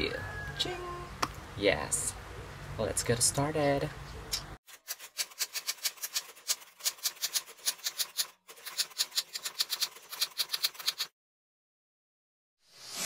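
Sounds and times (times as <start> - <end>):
manual typewriter typing: 4.8 - 11.1.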